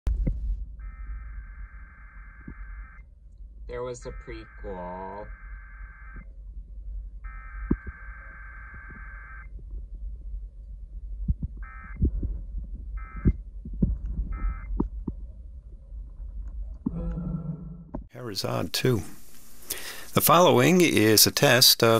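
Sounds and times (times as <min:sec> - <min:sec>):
low hum: 0:00.1 - 0:21.5
sharp thumps: 0:07.4 - 0:09.9.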